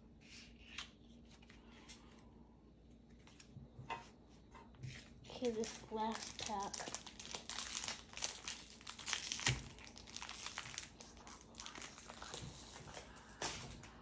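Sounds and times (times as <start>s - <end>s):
foil wrapper crinkling and tearing: 5.4s - 13.5s.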